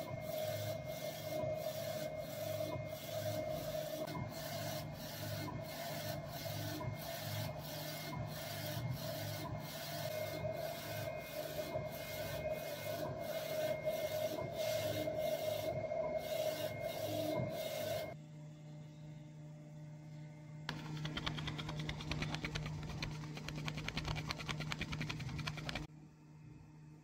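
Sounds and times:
label printer humming and pulsing: 0:00.0 - 0:18.2.

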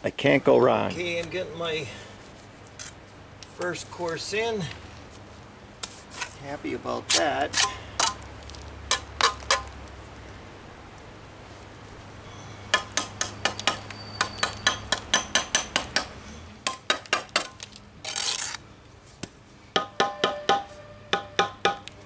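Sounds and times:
trowel scraping: 0:05.8 - 0:06.4, 0:18.0 - 0:18.6.

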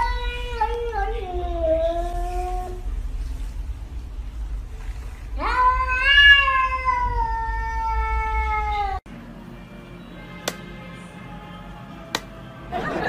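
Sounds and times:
cat meowing: 0:05.4 - 0:09.0.

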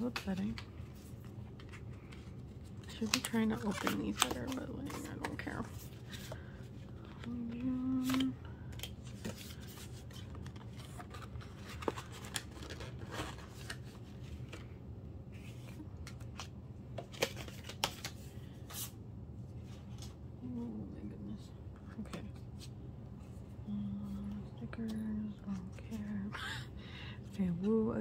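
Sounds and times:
packaging being handled: 0:00.0 - 0:14.7
person humming: 0:23.7 - 0:24.4.

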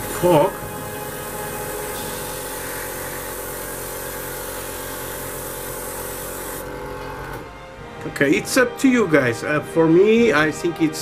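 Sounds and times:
airbrush spraying hiss: 0:00.0 - 0:06.7
compressor humming: 0:00.0 - 0:08.0.

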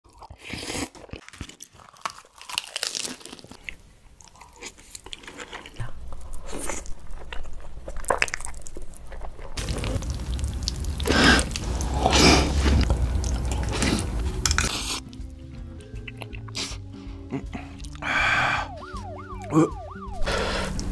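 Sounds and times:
crunchy bites: 0:00.1 - 0:15.2
chewing: 0:00.1 - 0:18.1
slurping noodles: 0:00.3 - 0:01.1, 0:09.6 - 0:15.2.

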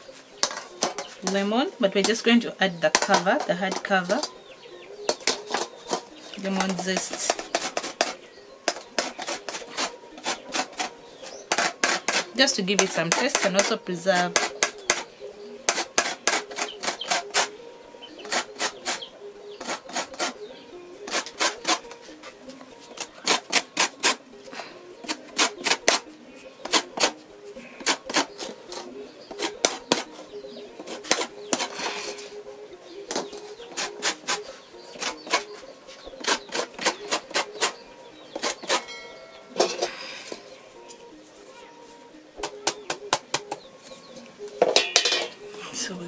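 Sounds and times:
lemon rind rasping on grater: 0:06.5 - 0:10.9, 0:19.6 - 0:20.4, 0:21.1 - 0:21.8.

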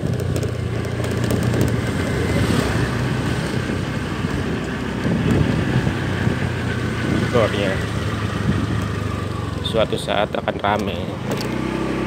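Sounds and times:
wind rumble on microphone: 0:00.0 - 0:09.1
motorcycle engine running: 0:00.0 - 0:12.0.

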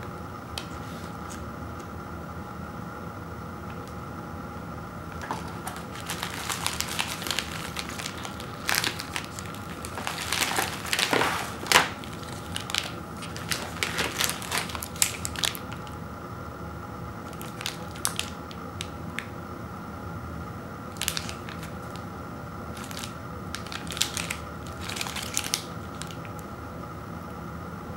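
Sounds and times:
plastic wrappers rustling and crackling: 0:05.2 - 0:16.0, 0:17.2 - 0:19.3, 0:20.9 - 0:22.1, 0:22.7 - 0:26.5.

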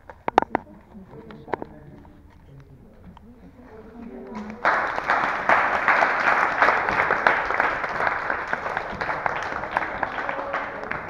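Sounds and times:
group of people applauding: 0:04.3 - 0:11.0.

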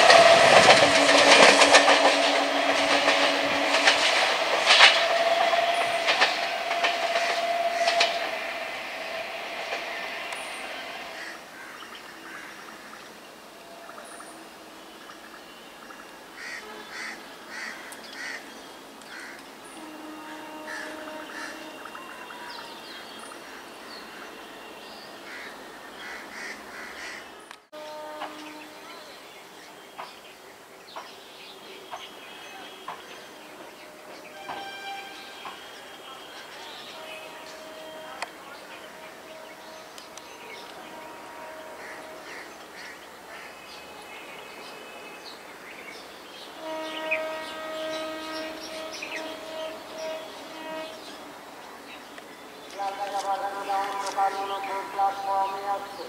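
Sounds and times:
train horn blast: 0:00.0 - 0:18.4, 0:19.1 - 0:29.7, 0:31.9 - 0:56.0
birds calling: 0:31.0 - 0:56.0.

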